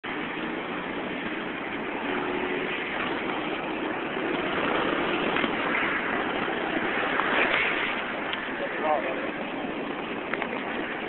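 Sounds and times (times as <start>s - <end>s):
road traffic hum: 0.0s - 11.0s.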